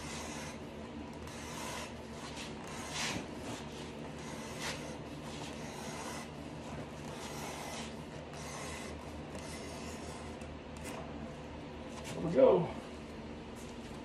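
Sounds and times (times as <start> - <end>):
blade cutting through leather: 1.2 - 6.3.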